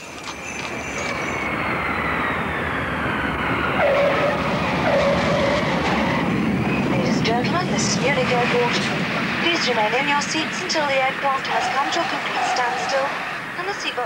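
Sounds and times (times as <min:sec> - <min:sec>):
jet airliner noise with whine: 0:00.0 - 0:14.0.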